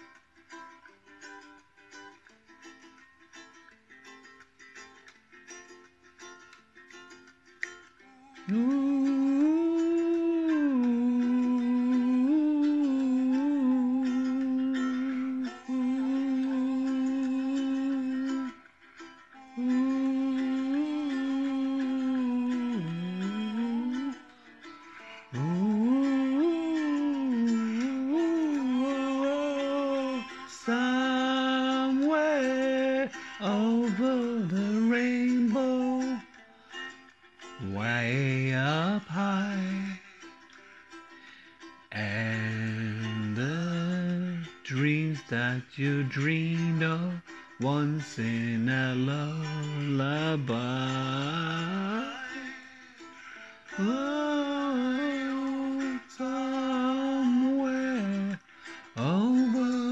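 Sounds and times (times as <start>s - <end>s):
faint plucked strings: 0.0s - 59.9s
man singing: 8.4s - 18.6s, 19.4s - 24.4s, 25.2s - 36.4s, 37.6s - 40.4s, 41.9s - 59.9s.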